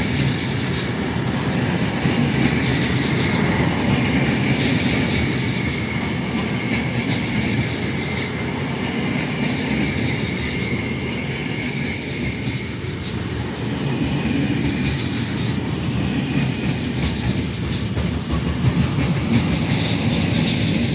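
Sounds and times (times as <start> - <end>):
electric locomotive passing: 0.0 - 20.9
low train rumble: 0.0 - 20.9
train wheels clacking over rail joints: 0.0 - 20.9
faint wheel squeal: 5.2 - 13.4.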